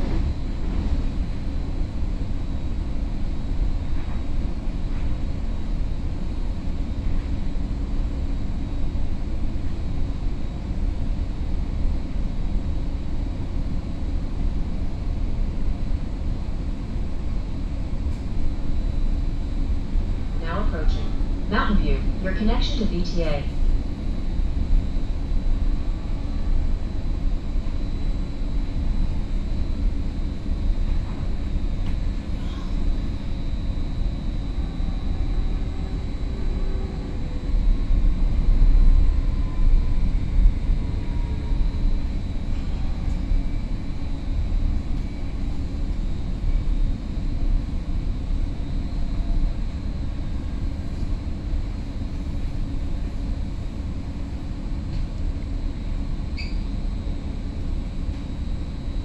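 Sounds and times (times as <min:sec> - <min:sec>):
train running rumble: 0:00.0 - 0:55.9
faint high whine: 0:14.9 - 0:59.0.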